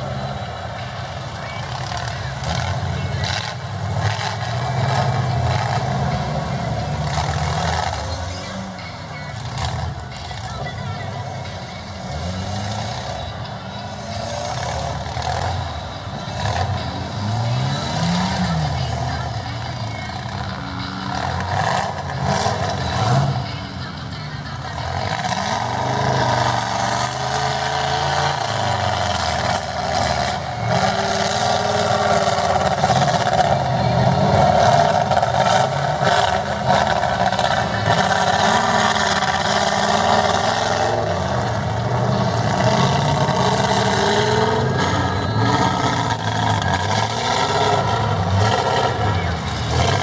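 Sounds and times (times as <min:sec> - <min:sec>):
truck engine revving: 0:00.0 - 0:50.0.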